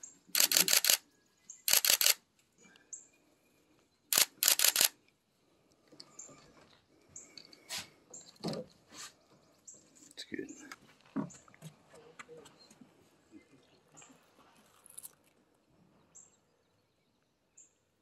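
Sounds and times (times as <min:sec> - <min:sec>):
camera shutter clicks: 0:00.4 - 0:01.0, 0:01.7 - 0:02.2, 0:04.1 - 0:05.0.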